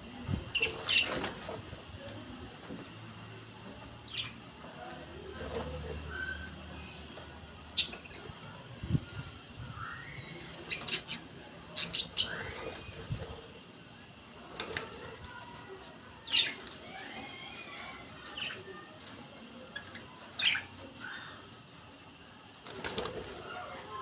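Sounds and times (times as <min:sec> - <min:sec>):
budgerigars chirping and chattering: 0:10.1 - 0:13.1.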